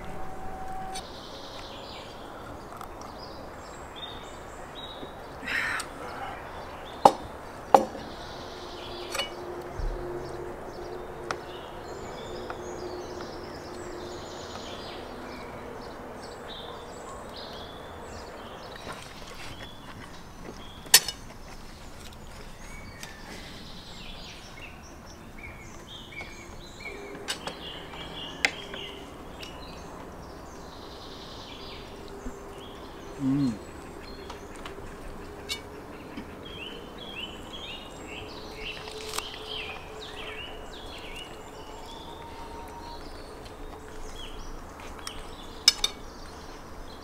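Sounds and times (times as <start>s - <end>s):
birds chirping: 0.0s - 47.0s
outdoor background noise: 0.0s - 47.0s
cutlery clinking on plates: 9.1s - 9.4s, 35.4s - 35.7s.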